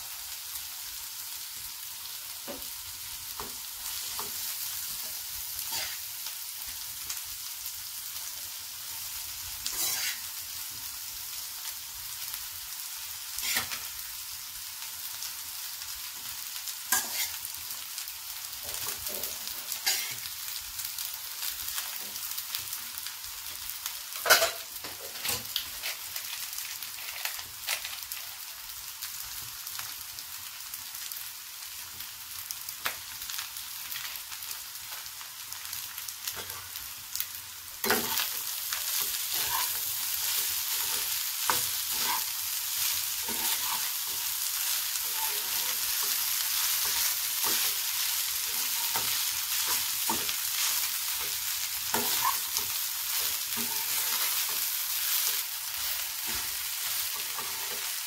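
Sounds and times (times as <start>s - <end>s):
rice sizzling in a frying pan: 0.0s - 58.0s
spatula scraping and tapping pan: 18.6s - 20.2s, 37.8s - 38.3s, 48.5s - 55.4s.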